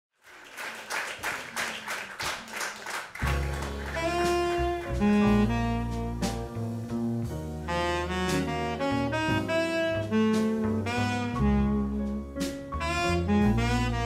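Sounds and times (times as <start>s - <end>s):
percussion tapping a steady beat: 3.2s - 6.5s
double bass: 3.2s - 14.0s
saxophone melody: 3.2s - 14.0s.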